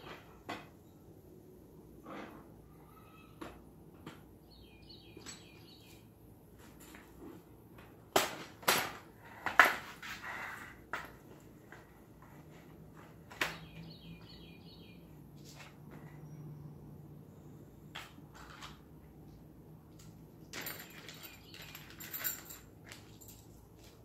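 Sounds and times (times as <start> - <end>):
birds chirping: 4.4 - 6.1, 13.5 - 15.2.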